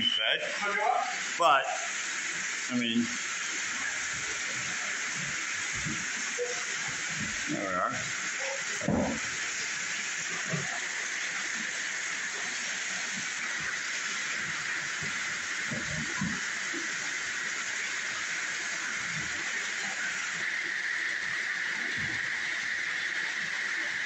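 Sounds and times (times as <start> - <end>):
water pouring into a pool: 0.0 - 24.0.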